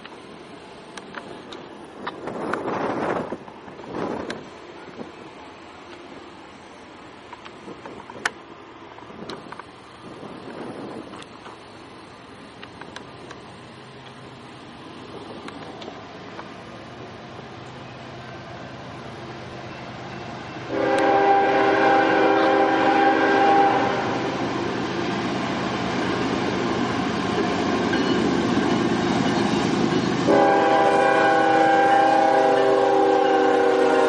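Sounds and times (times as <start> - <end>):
train engine and wheels rumbling: 0.0 - 34.0
train air horn blasts: 20.7 - 24.4, 30.2 - 34.0.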